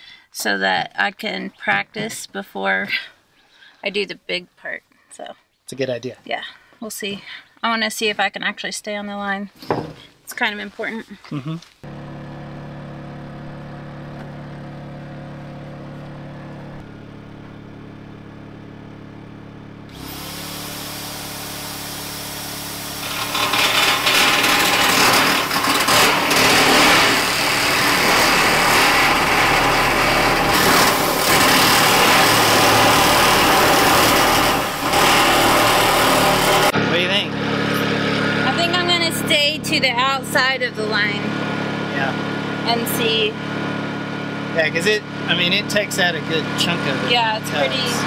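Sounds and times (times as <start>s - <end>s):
electric nibbler cutting metal: 19.9s - 36.8s.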